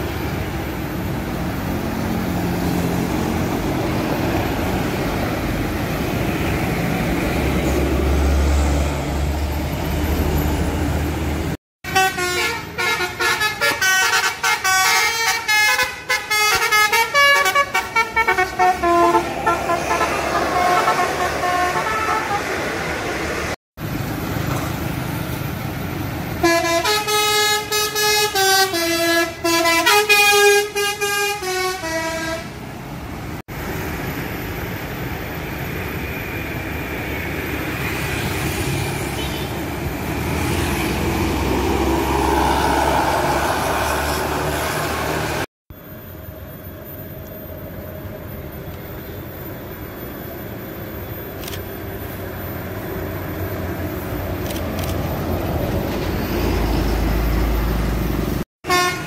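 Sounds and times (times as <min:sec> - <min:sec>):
bus engines running: 0:00.0 - 0:59.0
passing traffic: 0:00.0 - 0:59.0
bus air horn melody: 0:11.8 - 0:22.6, 0:26.4 - 0:32.6, 0:58.6 - 0:59.0.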